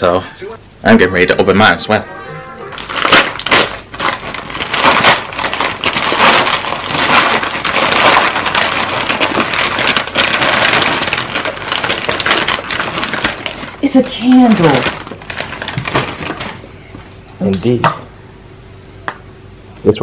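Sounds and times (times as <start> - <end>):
wrapping paper tearing and crinkling: 2.7 - 16.6.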